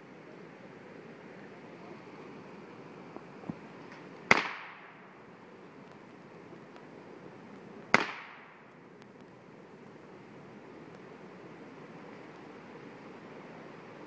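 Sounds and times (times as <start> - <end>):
gunshots with echo: 4.3 - 4.9.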